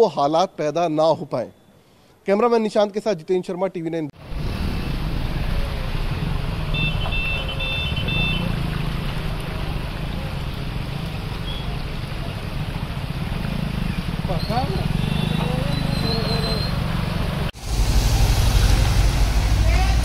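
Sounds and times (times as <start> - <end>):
scooters driving through water: 4.2 - 20.0.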